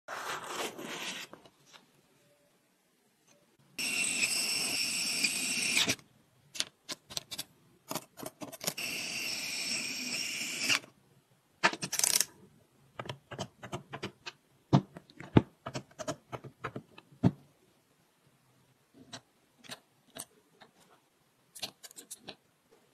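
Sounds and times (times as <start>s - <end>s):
electric screwdriver whirring: 3.8s - 6.0s, 8.8s - 10.8s.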